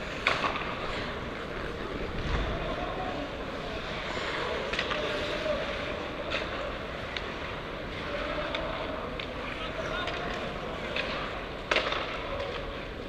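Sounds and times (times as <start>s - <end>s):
hockey sticks and puck clacking: 0.0s - 13.0s
wind and skate noise: 0.0s - 13.0s.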